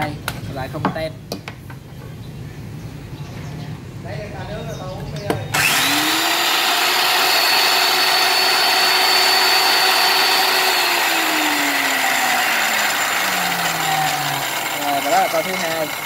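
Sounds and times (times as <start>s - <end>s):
cut-off saw motor whine: 5.5s - 16.0s
saw motor spinning down: 5.5s - 16.0s.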